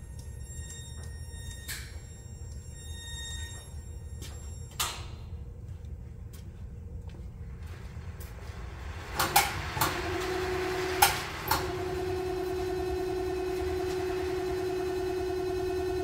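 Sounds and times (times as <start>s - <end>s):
hoist motor humming: 8.4s - 16.0s.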